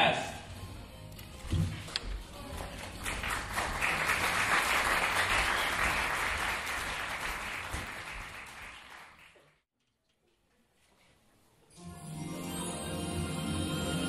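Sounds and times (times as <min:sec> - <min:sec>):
audience applauding: 0:02.5 - 0:09.6.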